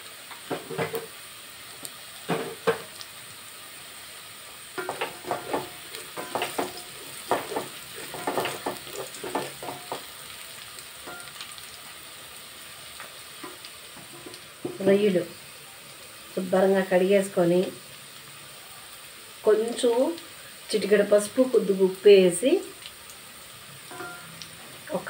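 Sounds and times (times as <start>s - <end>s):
food sizzling in oil: 0.0s - 25.0s
wooden spatula scraping a pot: 4.8s - 10.1s, 13.4s - 14.9s.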